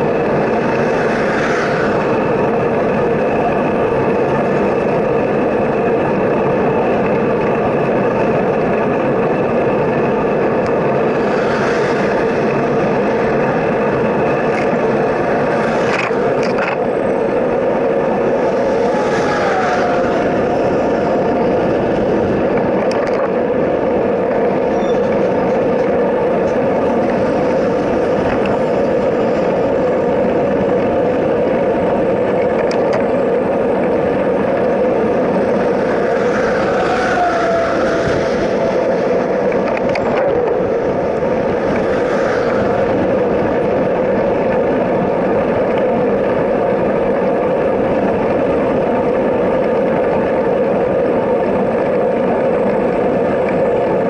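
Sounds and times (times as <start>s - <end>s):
road and wind noise: 0.0s - 54.0s
wind on microphone: 0.0s - 54.0s
vehicle passing by: 0.2s - 2.8s, 10.9s - 22.4s, 34.9s - 44.5s.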